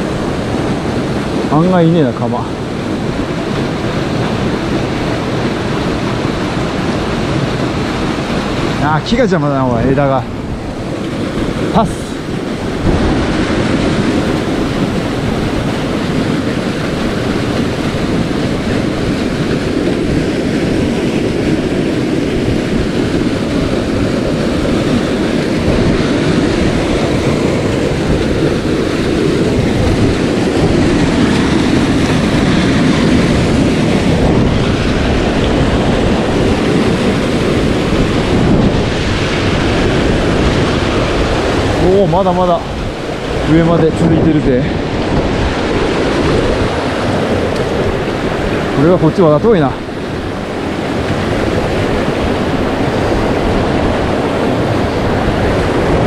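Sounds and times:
stream water rushing over cascades: 0.0 - 56.0.

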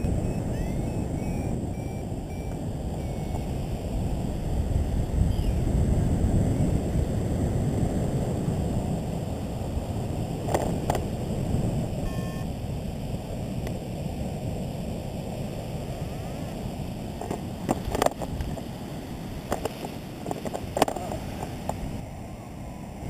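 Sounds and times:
brief beep: 0.0 - 3.5, 12.0 - 12.5
wind rushing over microphone: 0.0 - 23.0.

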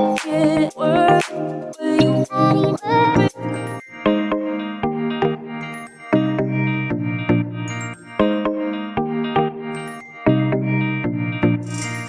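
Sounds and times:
background music melody: 0.0 - 12.0.

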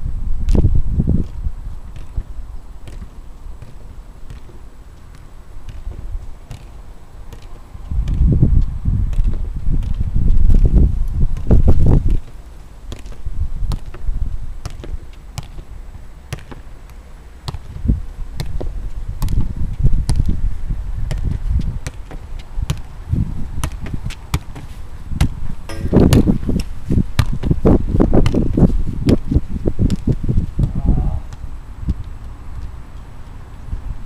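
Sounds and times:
feet tapping football: 0.5 - 15.7, 16.3 - 20.4, 21.0 - 25.9.

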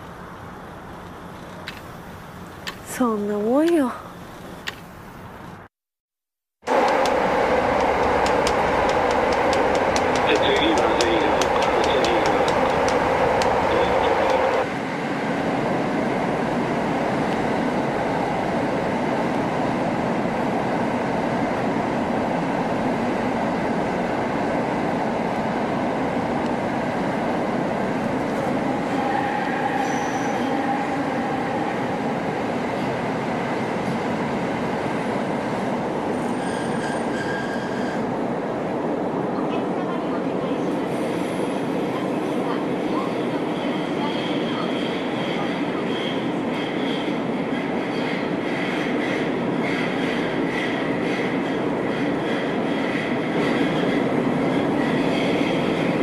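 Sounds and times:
train wheels rumbling on track: 6.6 - 56.0
high wheel squeals: 28.9 - 31.3, 36.1 - 38.1.

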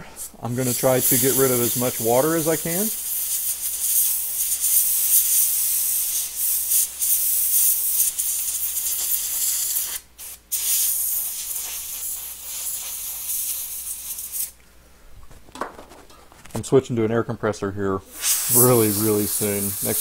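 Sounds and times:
compressed air hissing: 0.0 - 14.6, 18.1 - 20.0.

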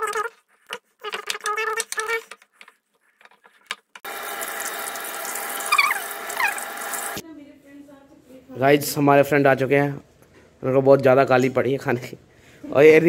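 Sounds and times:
hot oil sizzling: 4.1 - 7.2.

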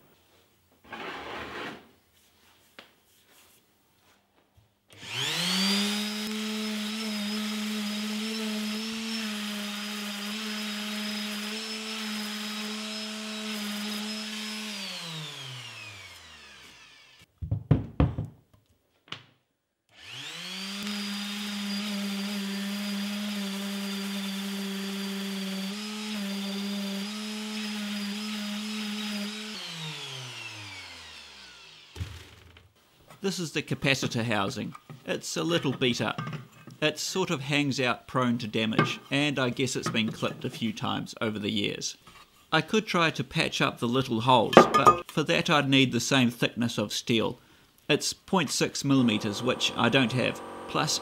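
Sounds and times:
orbital sander humming: 5.0 - 17.2, 20.0 - 32.0, 48.9 - 51.0.

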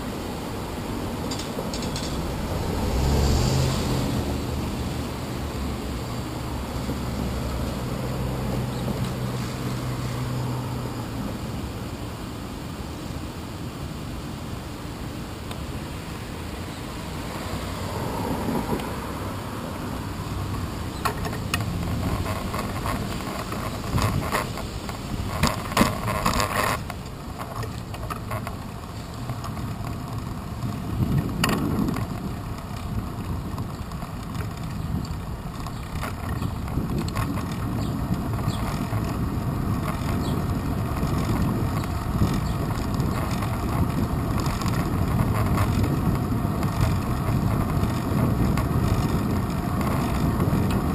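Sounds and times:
tyre road rumble: 0.0 - 50.9
wind on microphone: 14.4 - 50.9.

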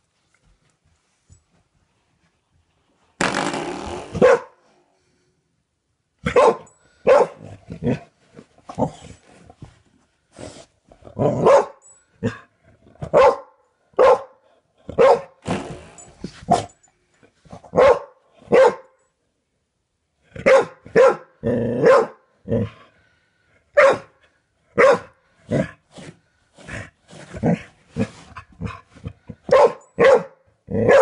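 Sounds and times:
large dog barking: 4.2 - 4.6, 6.2 - 8.0, 11.2 - 12.4, 13.0 - 15.4, 17.7 - 18.9, 20.4 - 22.2, 23.7 - 24.2, 24.8 - 25.6, 29.4 - 31.0.

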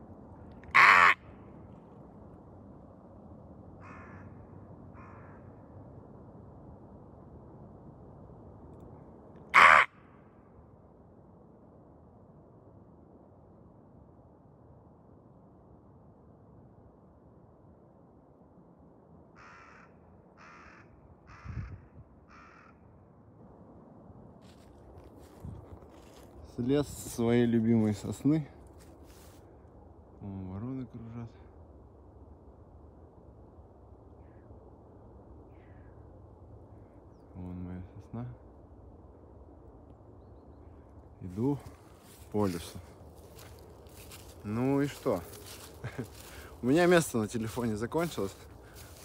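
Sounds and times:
crows cawing: 0.5 - 1.5, 3.8 - 5.7, 9.5 - 10.3, 19.4 - 23.0, 24.4 - 26.3, 35.5 - 36.0, 41.6 - 46.6, 48.3 - 49.0.

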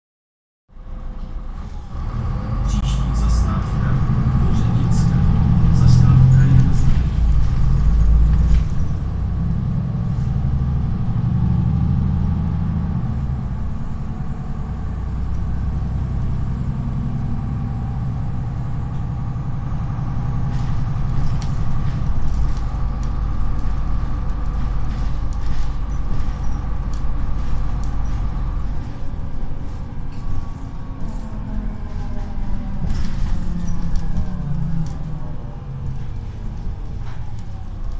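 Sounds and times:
bus drivetrain rumble: 0.7 - 37.9.

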